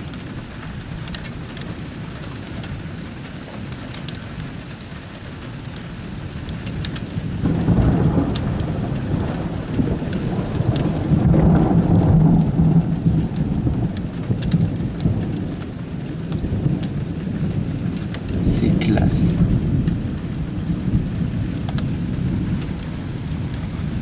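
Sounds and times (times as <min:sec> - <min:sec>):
raindrops ticking on surfaces: 0:00.0 - 0:24.0
steady rain: 0:00.0 - 0:24.0
rolling thunder: 0:06.6 - 0:24.0.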